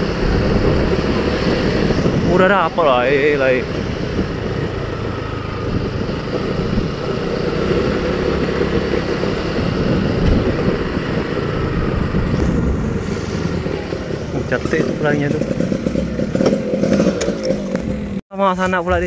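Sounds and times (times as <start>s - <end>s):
motorcycle engine running: 0.0s - 18.2s.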